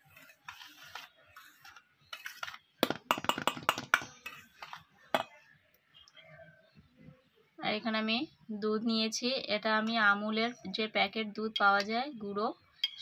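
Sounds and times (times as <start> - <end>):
wire whisk scraping metal bowl: 0.0 - 2.6.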